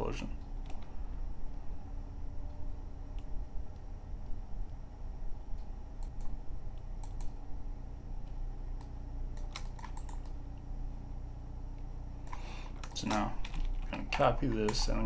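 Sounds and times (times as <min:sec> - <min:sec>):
steady low hum: 0:00.0 - 0:15.0
keyboard keystrokes: 0:08.8 - 0:10.4, 0:12.3 - 0:15.0.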